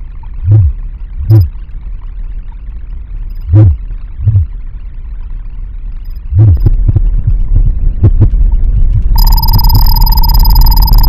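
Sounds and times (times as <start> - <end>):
low steady hum: 0.0 - 11.0
high electronic chirp: 9.2 - 11.0.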